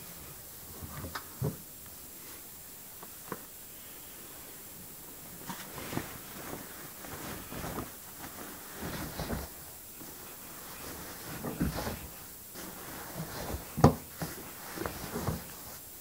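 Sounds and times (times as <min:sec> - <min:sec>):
rustling of cloth: 0:05.1 - 0:16.0.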